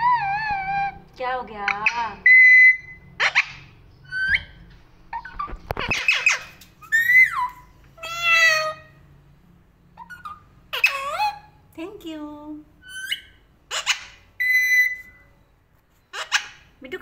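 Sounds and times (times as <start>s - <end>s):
parakeet harsh calls and chatter: 1.6s - 9.1s, 9.9s - 11.6s, 12.8s - 15.3s, 16.1s - 16.8s.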